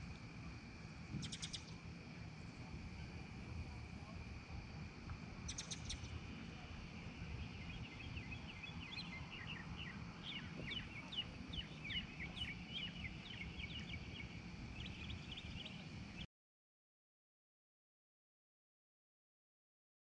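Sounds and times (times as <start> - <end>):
birds chirping: 1.1 - 1.8, 5.4 - 16.2.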